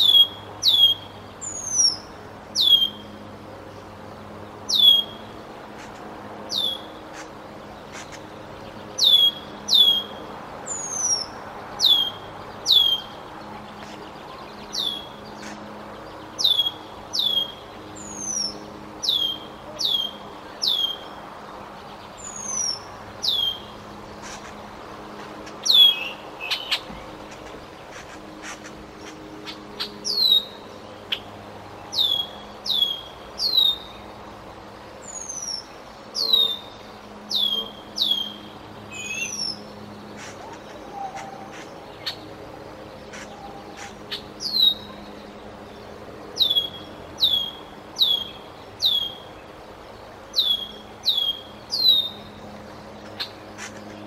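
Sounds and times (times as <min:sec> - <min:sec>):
blackbird alarm calls: 0:00.0 - 0:03.1, 0:09.0 - 0:13.2, 0:22.2 - 0:24.6, 0:25.2 - 0:31.3, 0:35.1 - 0:42.2, 0:43.0 - 0:45.0, 0:46.4 - 0:49.3, 0:50.4 - 0:52.3.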